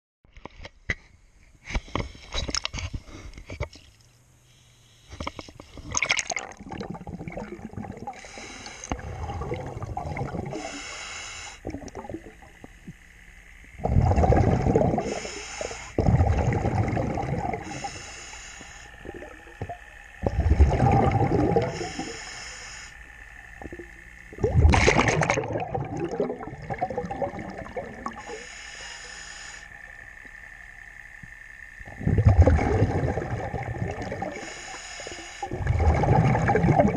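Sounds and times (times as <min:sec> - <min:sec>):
muffled underwater water sloshing: 0:04.9 - 0:22.4, 0:23.0 - 0:36.9
loud bubbly bursts: 0:05.9 - 0:08.3, 0:08.9 - 0:10.7, 0:11.6 - 0:12.5, 0:13.8 - 0:15.3, 0:16.0 - 0:17.8, 0:20.2 - 0:22.1, 0:23.6 - 0:28.2, 0:31.8 - 0:34.4, 0:35.5 - 0:36.9.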